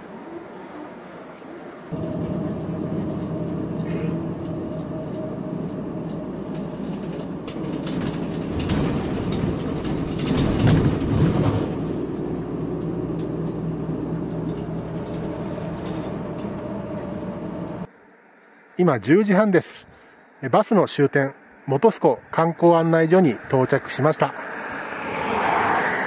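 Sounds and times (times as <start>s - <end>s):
bus engine hum: 0.0s - 18.8s
road noise: 0.0s - 26.0s
rattling and knocks: 2.0s - 17.9s.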